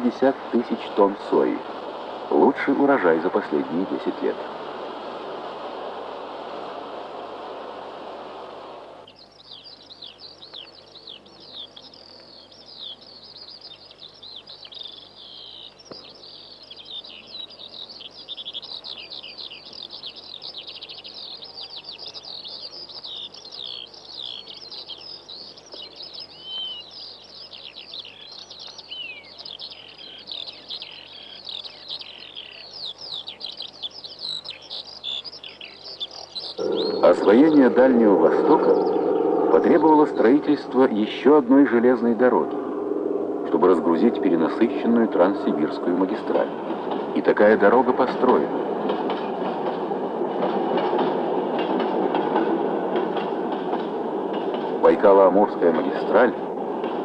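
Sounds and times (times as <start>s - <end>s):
flock of small birds chirping: 0.0s - 5.4s, 9.0s - 42.8s, 43.4s - 56.5s
steady noise: 0.0s - 9.1s, 36.5s - 48.9s.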